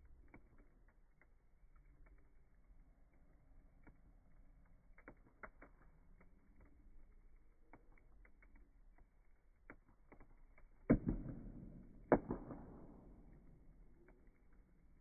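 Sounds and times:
wood fire crackling: 0:00.0 - 0:15.0
loud fire pops: 0:10.2 - 0:15.0.

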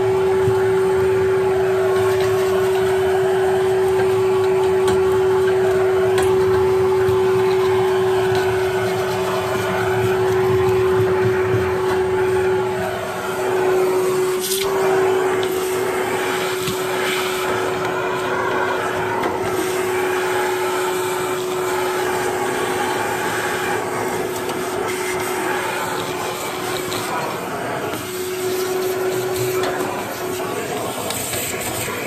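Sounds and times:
vacuum cleaner whining: 0:00.0 - 0:32.0.

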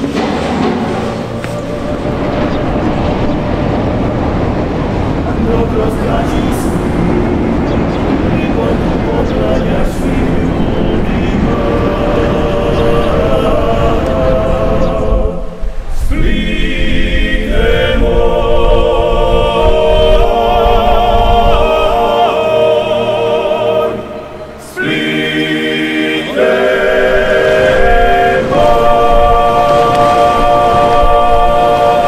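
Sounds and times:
voices singing in harmony: 0:00.0 - 0:32.0.

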